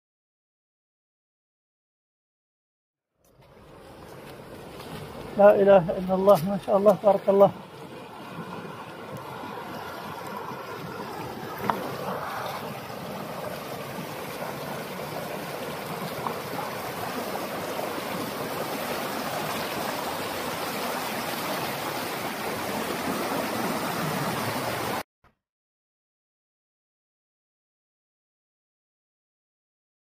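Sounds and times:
water rushing over rocks: 3.4 - 25.0.

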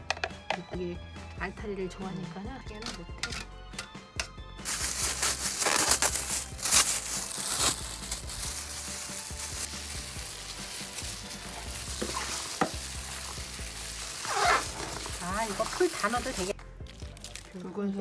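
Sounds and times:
hands mixing cabbage rustling: 4.6 - 17.7.

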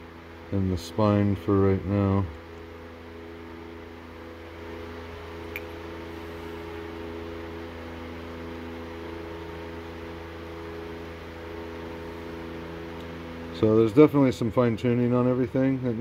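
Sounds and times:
machine hum: 0.0 - 16.0
small click: 5.5 - 5.8.

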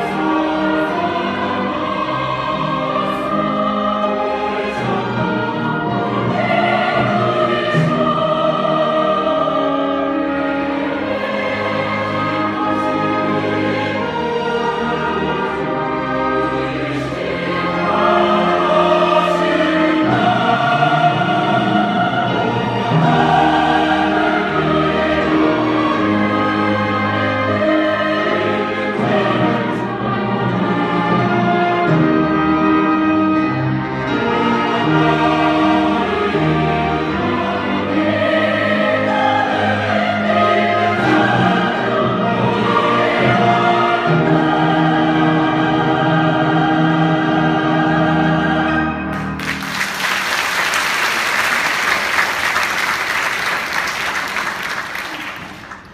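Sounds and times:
choir singing a hymn: 0.0 - 55.1
orchestra playing: 0.0 - 55.9
audience applause: 49.1 - 55.9.

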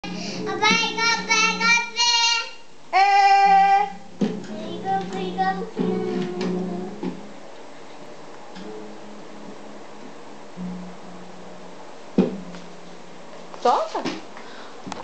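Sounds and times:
toddler singing: 0.4 - 7.0
acoustic guitar strums: 3.5 - 14.6.

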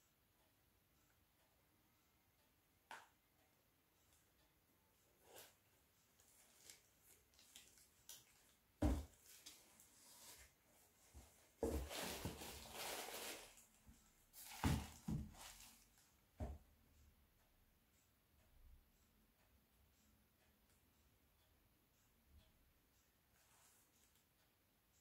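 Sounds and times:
sandals knocking on box: 8.8 - 9.1
tissue paper rustling: 11.1 - 13.7, 14.3 - 15.8.

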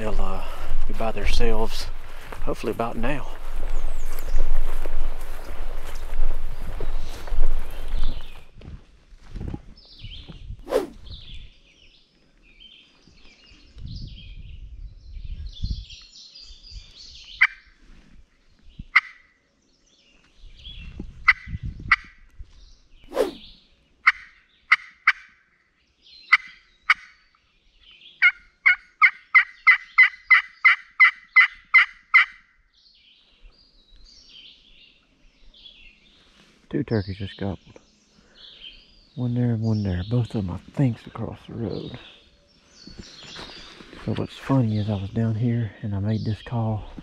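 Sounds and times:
rustling of leaves: 0.0 - 10.0, 35.7 - 36.7, 40.1 - 45.8
turkey call clucks and yelps: 28.2 - 32.5.

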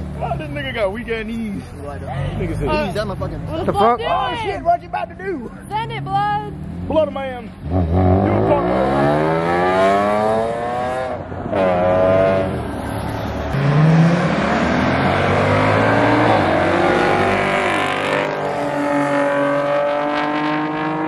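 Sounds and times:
car engine revving: 5.7 - 21.0
car engine pulling away: 6.0 - 21.0.

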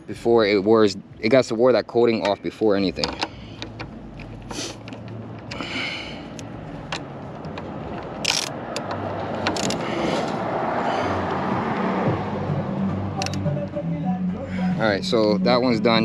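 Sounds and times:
passing traffic: 0.0 - 16.0.

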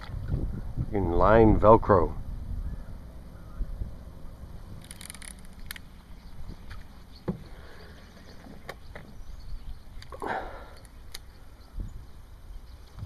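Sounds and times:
wind rumble on microphone: 0.0 - 7.0, 8.2 - 10.0, 11.4 - 13.0.

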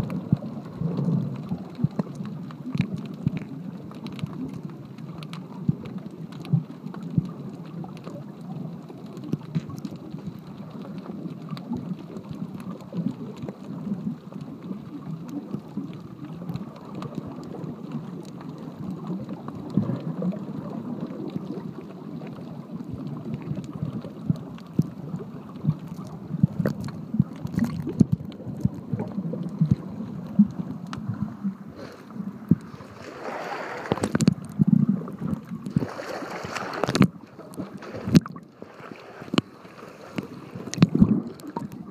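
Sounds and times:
underwater rush of water: 0.0 - 41.9
underwater clicks and pops: 9.2 - 10.1, 23.3 - 31.3, 32.4 - 32.8, 33.8 - 38.6, 39.3 - 39.5, 40.1 - 41.9
water splashing: 14.4 - 41.9.

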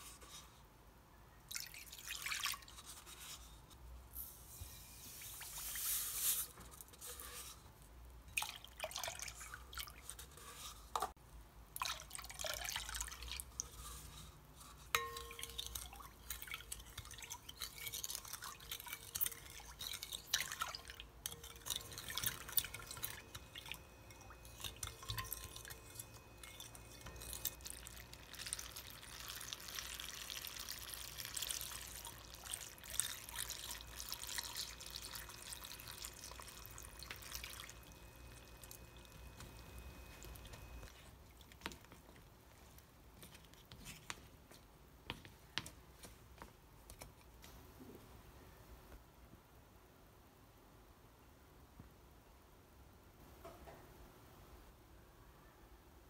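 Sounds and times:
liquid pouring: 1.5 - 3.4, 8.3 - 10.7, 11.8 - 14.0, 15.0 - 41.6
spoon scraping glass bowl: 4.2 - 7.7, 13.4 - 40.9
liquid sloshing: 15.0 - 41.9.

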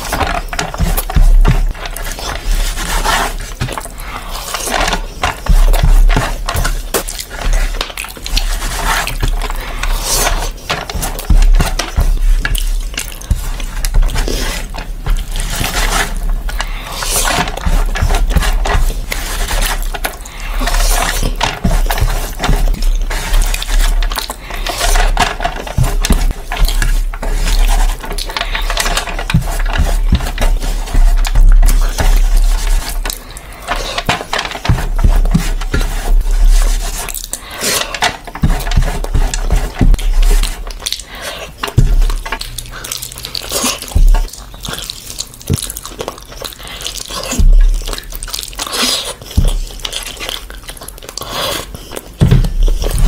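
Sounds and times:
hand squishing rice on metal tray: 0.0 - 49.9
small crackles and clicks: 0.0 - 53.0
wet chewing and lip smacking: 40.4 - 53.0.

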